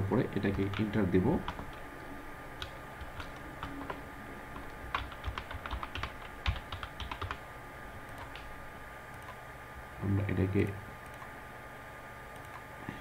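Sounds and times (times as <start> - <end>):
computer keyboard typing: 0.4 - 1.8, 2.6 - 7.4, 8.1 - 8.5, 9.1 - 9.4, 12.4 - 12.6.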